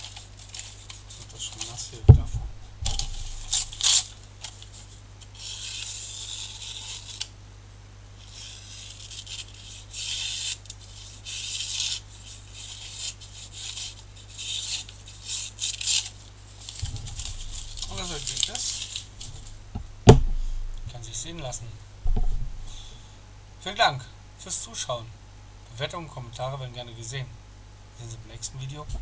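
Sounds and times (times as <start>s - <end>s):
steady low hum: 0.0s - 10.0s, 15.0s - 29.0s
knife slicing paper: 2.9s - 7.3s, 8.2s - 19.6s.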